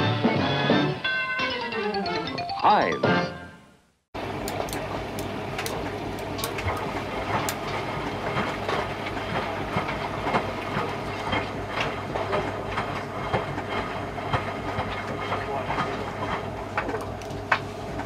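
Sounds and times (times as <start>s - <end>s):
washing machine motor hum: 4.2s - 18.0s.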